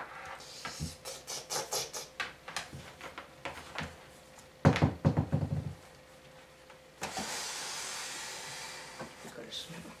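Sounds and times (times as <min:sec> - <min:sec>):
knocking and rattling: 0:04.6 - 0:05.8.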